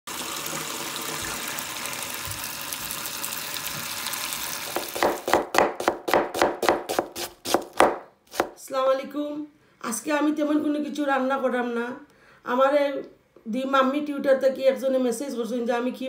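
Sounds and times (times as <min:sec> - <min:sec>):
tap water running onto onions: 0:00.1 - 0:08.5
knife slicing onions on board: 0:04.7 - 0:08.6.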